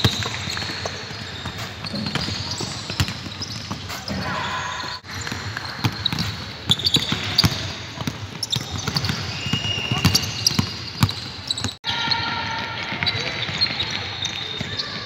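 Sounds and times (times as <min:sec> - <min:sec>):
basketballs bouncing on hardwood: 0:00.0 - 0:04.0, 0:05.2 - 0:11.8.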